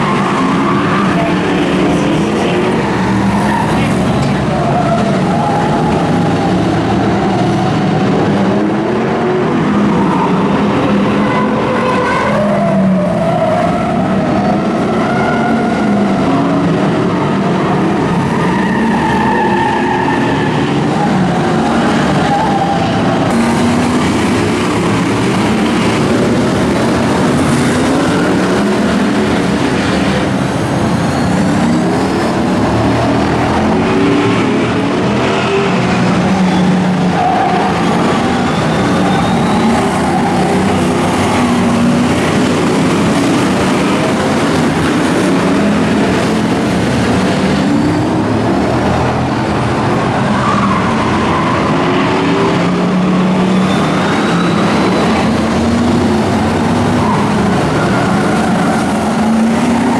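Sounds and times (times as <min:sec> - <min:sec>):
racing car engines: 0:00.0 - 0:59.9
tyres squealing: 0:17.7 - 0:59.9.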